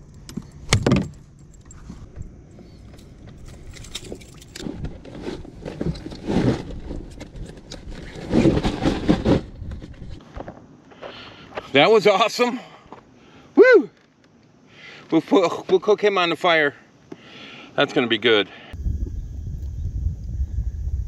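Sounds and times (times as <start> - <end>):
gear scraping and clattering: 0.4 - 10.2.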